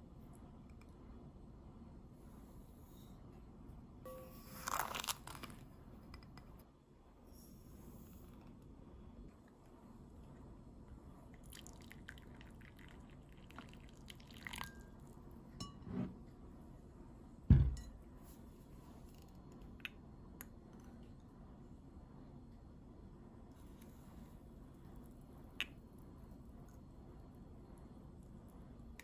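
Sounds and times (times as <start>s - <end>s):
glass bowl set down thump: 17.5s - 17.9s.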